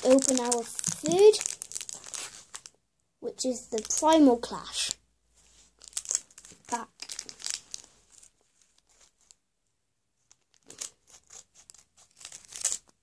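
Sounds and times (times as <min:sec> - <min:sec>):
foil wrapper crinkling and tearing: 0:00.0 - 0:02.7, 0:03.7 - 0:04.1, 0:05.8 - 0:09.4, 0:10.3 - 0:13.0.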